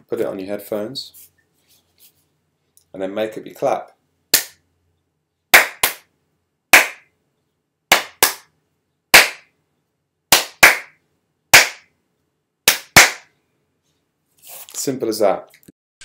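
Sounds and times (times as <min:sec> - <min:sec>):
hand claps in rhythm: 0:04.3 - 0:04.6, 0:05.5 - 0:06.1, 0:06.8 - 0:07.1, 0:07.9 - 0:08.5, 0:09.1 - 0:09.5, 0:10.3 - 0:11.9, 0:12.7 - 0:13.3.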